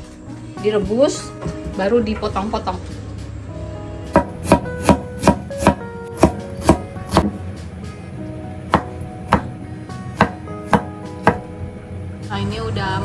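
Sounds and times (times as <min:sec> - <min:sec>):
cleaver chopping on wooden board: 0:04.1 - 0:07.4, 0:08.7 - 0:09.6, 0:10.2 - 0:11.5.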